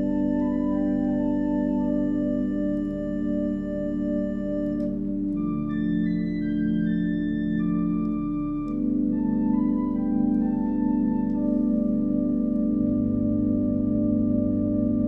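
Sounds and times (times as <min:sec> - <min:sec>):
organ playing hymn: 0:00.0 - 0:15.0.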